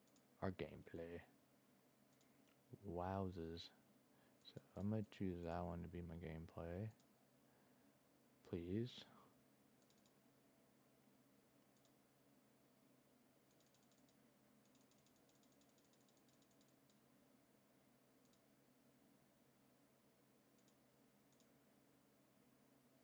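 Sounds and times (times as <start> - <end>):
computer mouse clicks: 0.0 - 0.3, 2.1 - 2.6, 9.8 - 10.2, 11.6 - 12.0, 13.5 - 17.0, 18.2 - 18.5, 20.6 - 21.6
scroll wheel ticking: 13.5 - 17.0.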